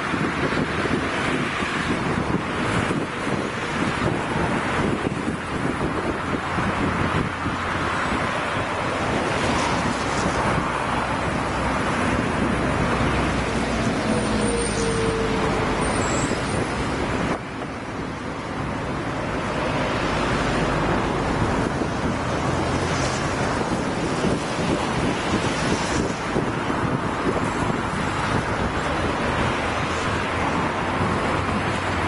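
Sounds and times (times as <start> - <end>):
wind on microphone: 0.0 - 32.0
freight train rumbling past: 7.8 - 32.0.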